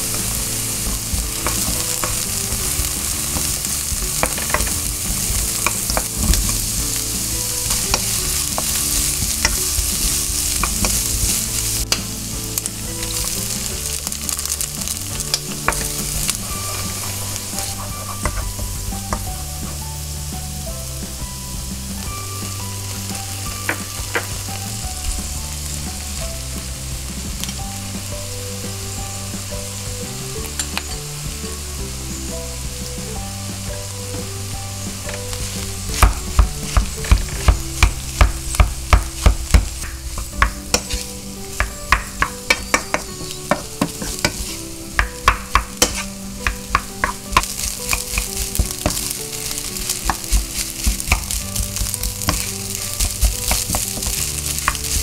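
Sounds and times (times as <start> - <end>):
rice sizzling in a frying pan: 0.0 - 55.0
spatula clacking against pan: 36.0 - 49.1, 49.8 - 55.0.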